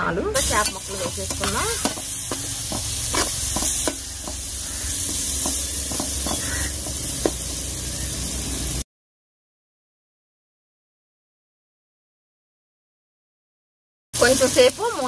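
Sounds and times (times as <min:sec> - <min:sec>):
food sizzling in hot oil: 0:00.3 - 0:08.8, 0:14.2 - 0:15.0
spatula scraping metal pot: 0:00.4 - 0:06.9.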